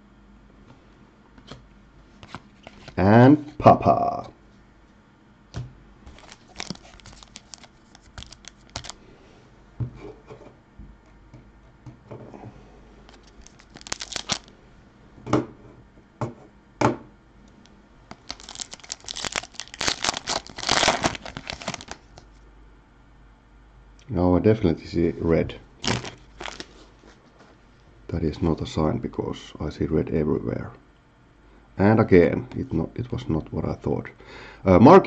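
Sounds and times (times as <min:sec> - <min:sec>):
plastic wrapper crinkling: 0:06.1 - 0:09.0, 0:13.1 - 0:14.5, 0:18.1 - 0:22.3, 0:25.8 - 0:27.1.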